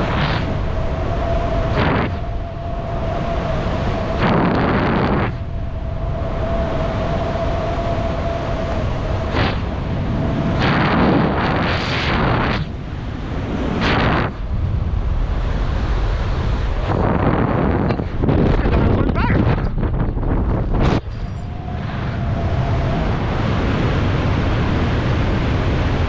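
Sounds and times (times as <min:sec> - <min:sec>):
wind rushing over microphone: 0:00.0 - 0:26.0
thin steady whistle: 0:00.6 - 0:04.2.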